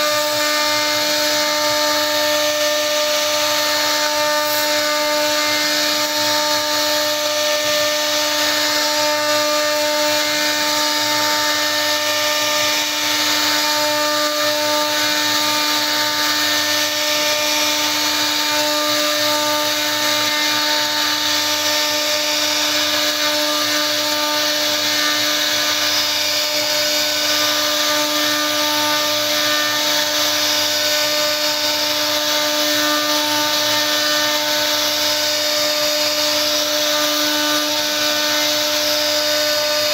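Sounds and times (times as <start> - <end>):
bit cutting wood: 0.0 - 39.9
router spindle whining: 0.0 - 39.9.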